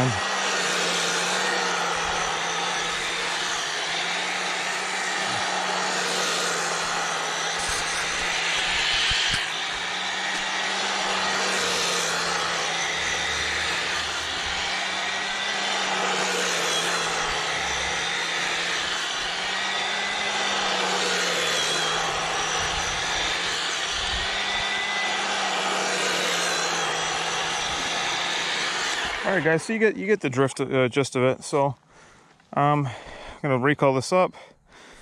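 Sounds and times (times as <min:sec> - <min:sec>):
electric motor whir: 0:00.0 - 0:29.9.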